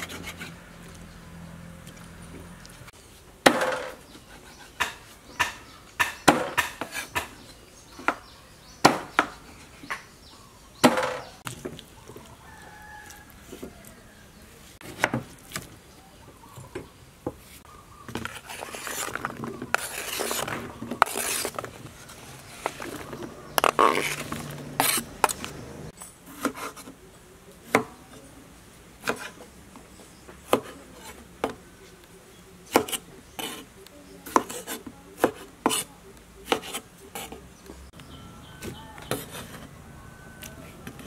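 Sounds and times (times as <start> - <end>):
cleaver chopping on wooden board: 3.4 - 4.0, 4.8 - 7.4, 8.8 - 10.0, 10.8 - 11.6, 30.5 - 30.8, 32.7 - 33.6, 34.3 - 37.4
rustling handling: 17.4 - 25.6.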